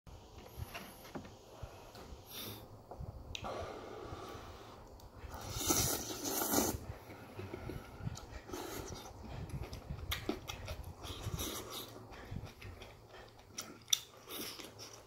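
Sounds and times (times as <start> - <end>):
person slurping noodles: 5.3 - 6.9.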